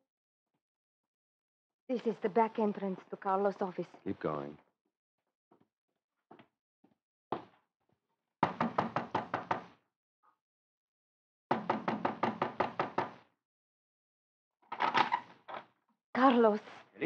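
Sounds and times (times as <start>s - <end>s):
rapid knocking on door: 8.4s - 9.8s, 11.5s - 13.2s.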